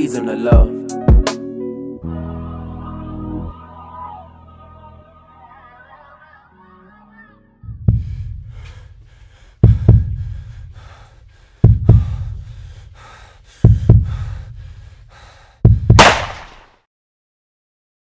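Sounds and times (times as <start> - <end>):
deep heartbeat: 7.7 - 16.0
heavy breathing through gas mask: 7.9 - 15.6.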